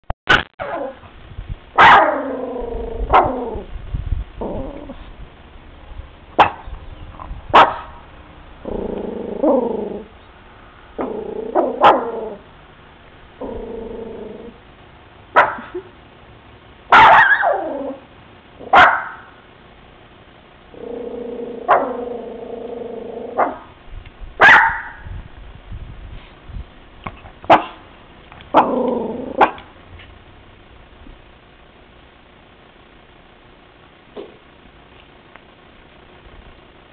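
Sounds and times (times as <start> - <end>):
dog barking: 1.8 - 2.2, 6.4 - 6.6, 7.5 - 8.0, 11.6 - 12.1, 15.4 - 15.8, 16.9 - 17.6, 18.6 - 19.3, 21.7 - 22.0, 23.4 - 23.7, 24.4 - 25.0, 27.5 - 27.8, 29.4 - 29.7.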